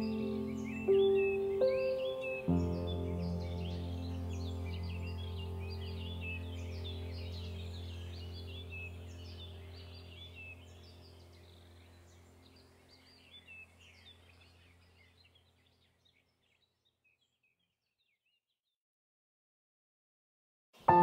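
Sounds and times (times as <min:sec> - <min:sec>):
low drone: 0:00.0 - 0:13.2
birdsong chirping: 0:00.0 - 0:18.5.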